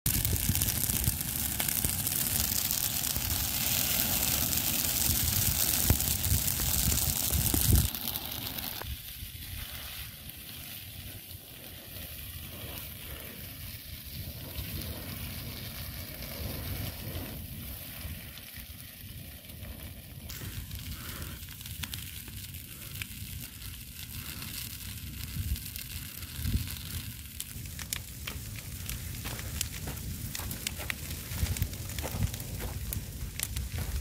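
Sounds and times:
fire crackling and hissing: 0:00.0 - 0:34.0.

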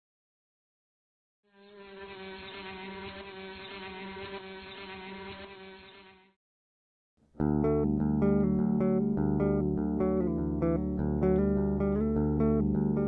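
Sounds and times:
bee buzzing: 0:01.5 - 0:06.3
plucked guitar and bass music: 0:07.3 - 0:13.0.

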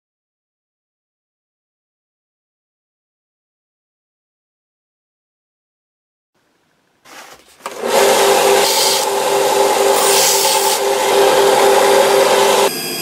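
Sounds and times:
wood rasping on sanding belt: 0:07.3 - 0:12.7
belt sander motor humming: 0:07.6 - 0:13.0.

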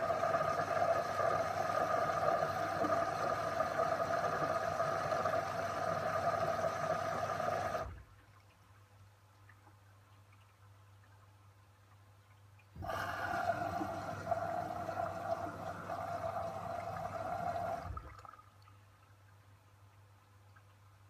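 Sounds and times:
washing machine motor whine: 0:00.0 - 0:08.0, 0:12.8 - 0:18.1
water sloshing in washing machine: 0:00.0 - 0:08.4, 0:12.8 - 0:18.6.

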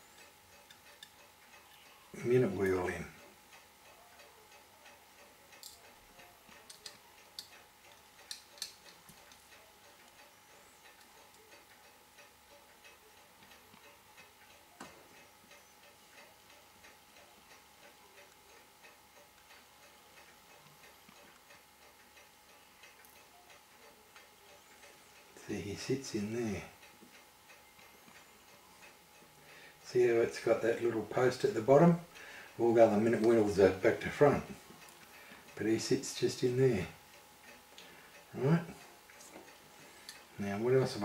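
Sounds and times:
faint mechanical ticking: 0:00.0 - 0:41.0
tweezers clicking on watch parts: 0:00.2 - 0:01.9, 0:04.5 - 0:12.3.

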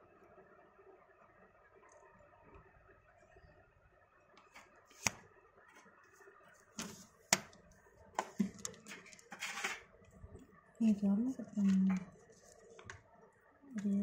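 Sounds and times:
fingers rustling on phone: 0:11.4 - 0:13.1.

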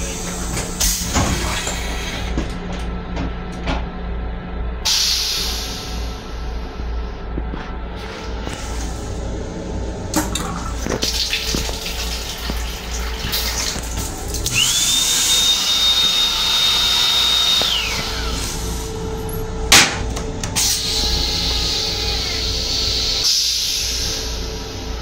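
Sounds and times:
toilet flushing whine: 0:00.0 - 0:25.0
sharp clunk: 0:19.7 - 0:20.6.

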